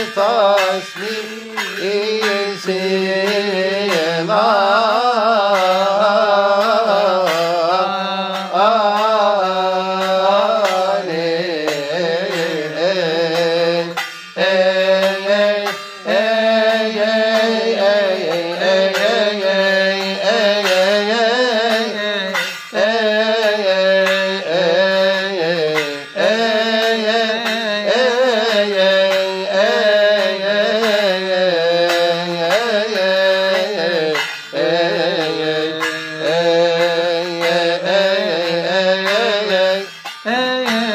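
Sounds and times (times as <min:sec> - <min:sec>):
hand cymbals beat: 0:00.0 - 0:40.9
voices chanting a hymn: 0:13.8 - 0:27.5.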